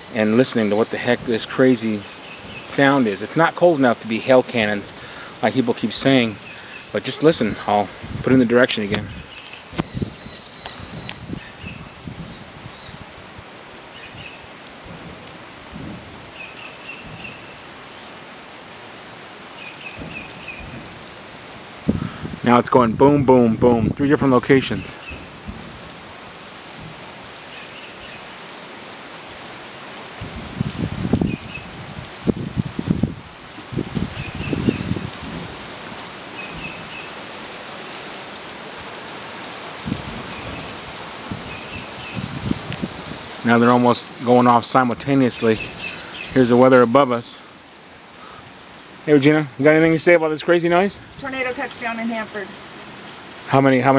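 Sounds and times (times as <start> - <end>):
rain hiss: 0.0 - 53.9
low distant booms: 14.8 - 16.3, 19.9 - 23.2, 24.9 - 27.1
dull distant low booms: 19.9 - 24.0.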